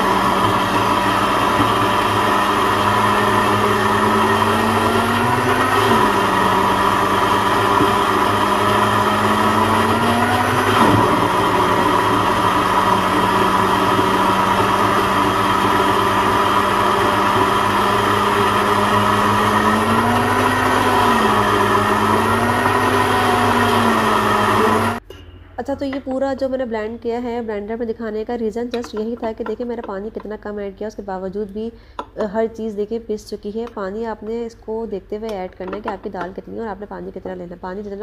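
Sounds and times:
electric blender motor grinding: 0.0s - 25.0s.

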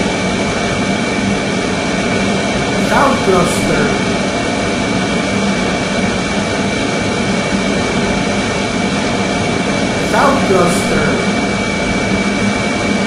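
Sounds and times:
low hum: 2.8s - 4.9s.

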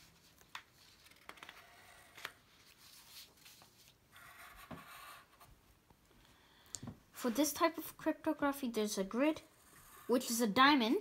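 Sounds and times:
pencil scratching on paper: 4.2s - 5.5s, 9.3s - 10.8s.

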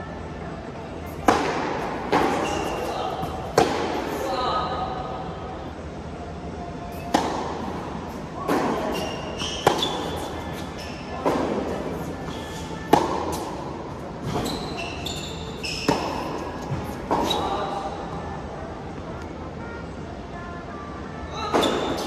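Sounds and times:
shoe squeaks on court: 2.3s - 3.1s, 8.7s - 11.2s, 12.2s - 12.7s, 14.2s - 17.7s.

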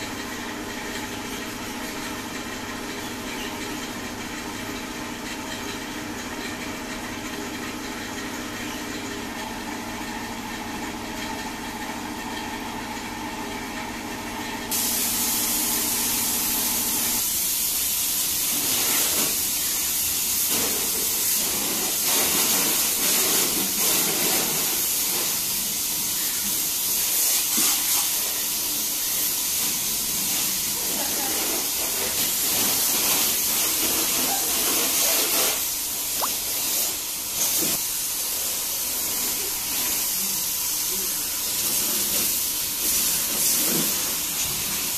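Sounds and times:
pressure washer spraying water: 14.7s - 44.9s.

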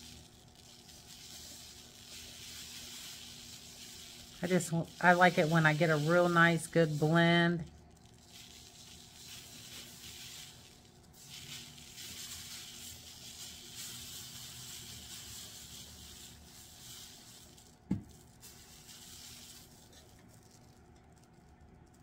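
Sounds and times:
glitter shaken soft hiss: 0.0s - 22.0s
thump: 17.9s - 18.1s.

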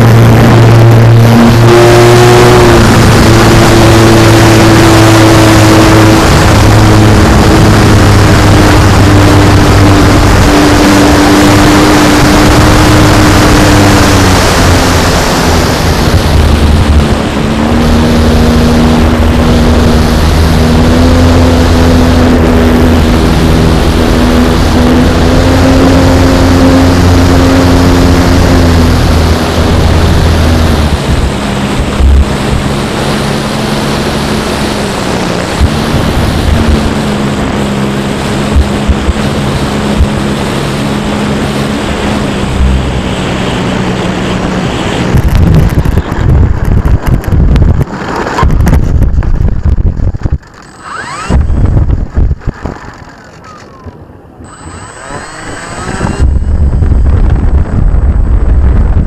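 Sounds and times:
wind buffeting microphone: 0.0s - 59.0s
model plane electric motor hum: 50.4s - 57.6s.

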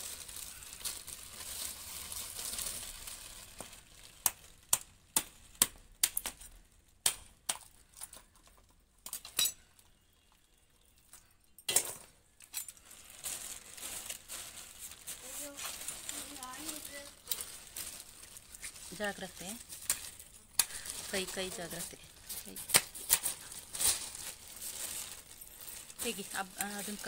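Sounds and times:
plastic bag rustling: 0.0s - 5.6s, 11.9s - 27.0s.

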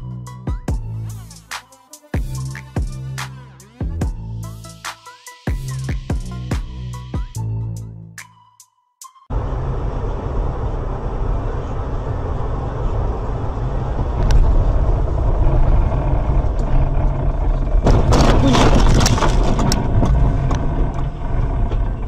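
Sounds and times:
car engine and road rumble: 9.3s - 22.0s
rough crackling noise: 13.8s - 22.0s.

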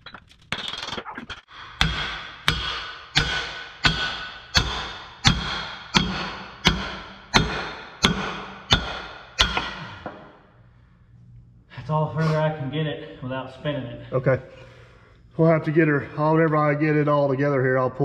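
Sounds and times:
heavy hammer striking steel: 1.5s - 10.4s.

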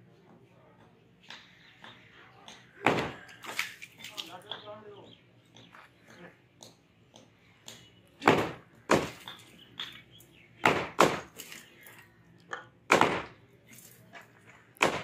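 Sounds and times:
hammers breaking concrete: 1.8s - 3.8s, 8.2s - 9.9s, 10.6s - 11.6s, 12.9s - 13.4s, 14.8s - 15.0s.

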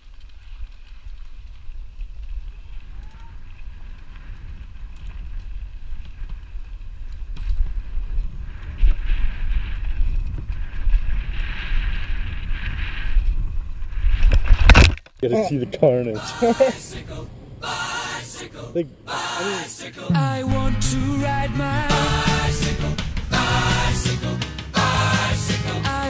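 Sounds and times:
mountain bike rattling: 0.0s - 15.1s
wind buffeting microphone: 1.0s - 14.8s.

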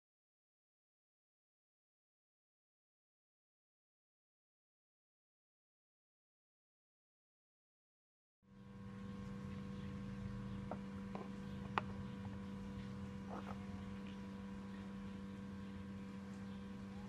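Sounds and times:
electrical hum: 8.5s - 17.0s.

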